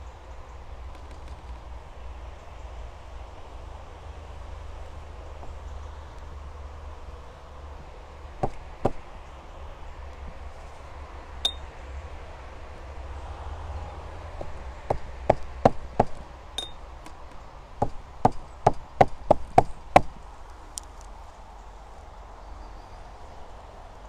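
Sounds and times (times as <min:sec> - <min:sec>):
high clinks: 0:11.5 - 0:11.7, 0:16.6 - 0:16.8
hard object taps and knocks: 0:14.4 - 0:16.8.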